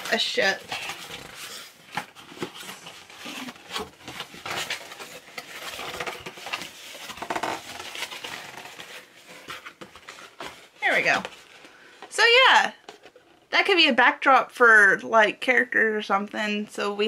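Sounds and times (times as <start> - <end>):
cardboard rustling and scraping: 0.0 - 12.0.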